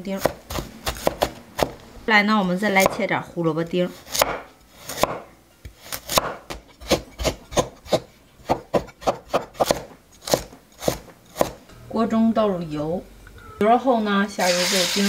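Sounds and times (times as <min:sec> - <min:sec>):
knife chopping on wooden board: 0:00.2 - 0:01.8, 0:02.8 - 0:03.0, 0:04.0 - 0:11.6.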